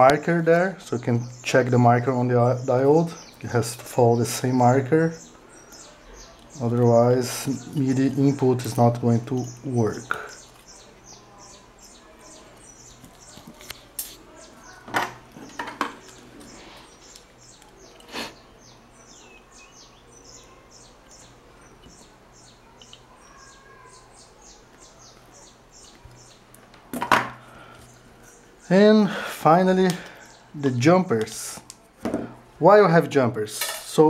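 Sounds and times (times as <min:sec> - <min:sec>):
small bird chirping: 0:00.9 - 0:26.6.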